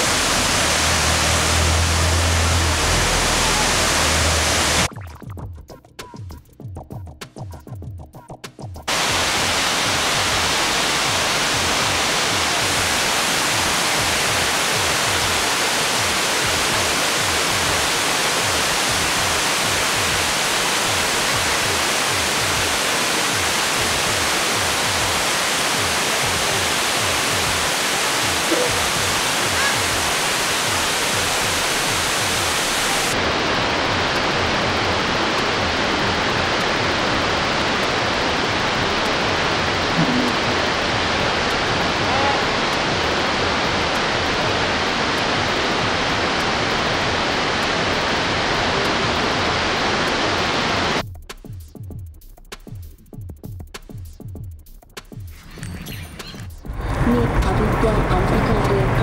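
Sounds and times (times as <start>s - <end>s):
waterfall rushing: 0.0s - 4.9s, 8.9s - 51.0s.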